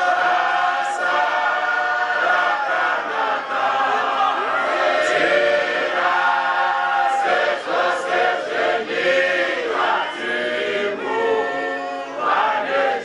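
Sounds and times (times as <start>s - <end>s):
choir singing gospel song: 0.0s - 13.0s.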